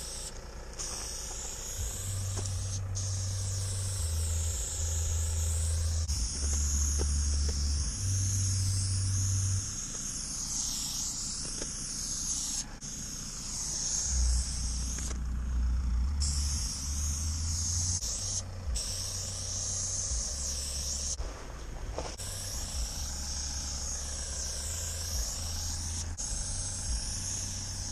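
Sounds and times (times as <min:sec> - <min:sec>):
spray paint can hissing: 0:00.0 - 0:27.9
low microphone rumble: 0:12.7 - 0:27.6.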